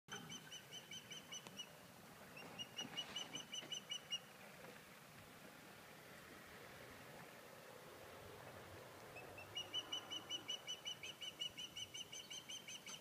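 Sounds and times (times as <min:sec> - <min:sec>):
osprey whistled calls: 0:00.1 - 0:01.8, 0:02.4 - 0:04.3, 0:09.2 - 0:13.0.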